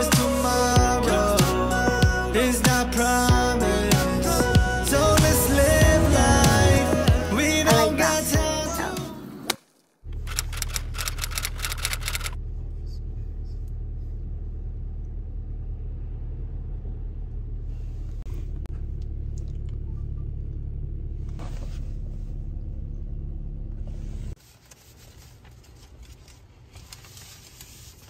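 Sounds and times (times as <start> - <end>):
car interior rumble: 0.0 - 8.8, 11.7 - 24.4.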